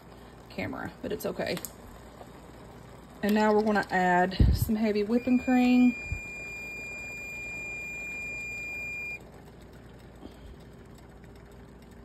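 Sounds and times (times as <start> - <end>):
high-pitched electronic beep: 5.2 - 9.2.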